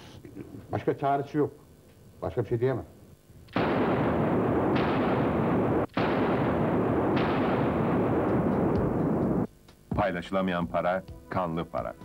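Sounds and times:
echoing gunshots: 0:03.5 - 0:09.5.

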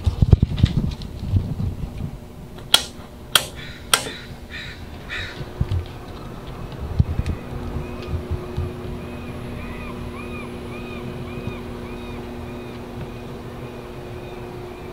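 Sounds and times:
toggle switches clicking: 0:02.6 - 0:04.2
low bumps and rumble: 0:04.8 - 0:13.5.

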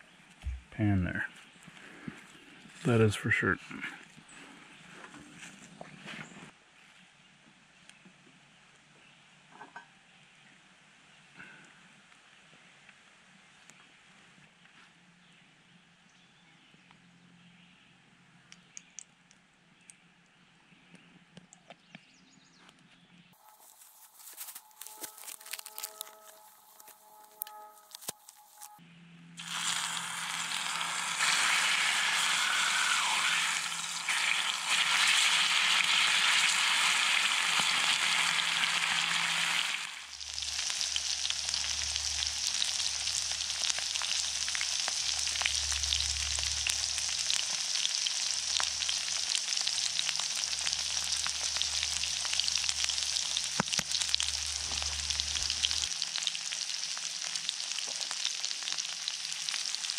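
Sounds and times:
steak sizzling with pops: 0:23.4 - 0:28.8, 0:29.4 - 0:59.9
low rumble: 0:41.0 - 0:47.6, 0:54.0 - 0:55.9.

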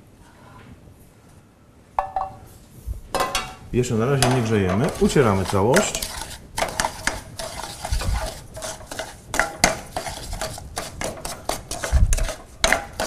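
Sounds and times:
wooden spoon beating in metal pan: 0:02.0 - 0:02.4, 0:03.1 - 0:13.0.

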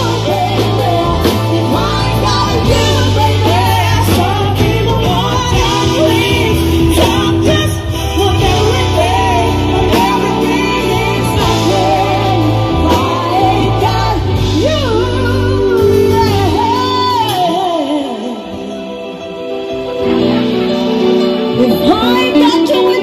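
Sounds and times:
drum kit: 0:00.0 - 0:18.2
electric guitar: 0:00.0 - 0:23.0
keyboards: 0:00.0 - 0:23.0
person singing: 0:00.0 - 0:23.0.

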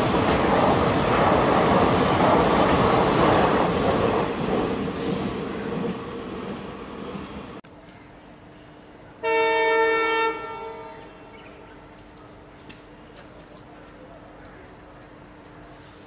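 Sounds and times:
train wheels clattering on track: 0:00.0 - 0:07.6.

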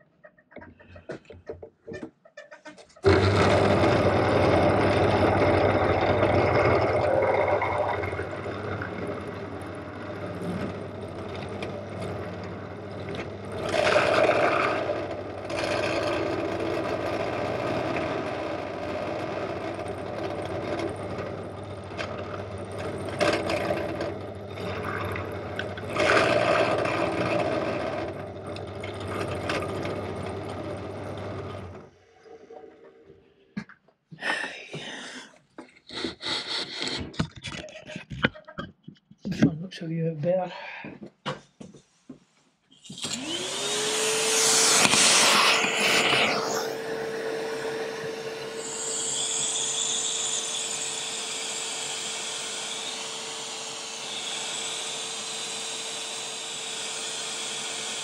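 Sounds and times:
metal cutting noise: 0:03.0 - 0:31.8, 0:42.8 - 0:58.0
drill motor hum: 0:03.0 - 0:31.9, 0:35.8 - 0:37.7, 0:42.8 - 0:58.0.

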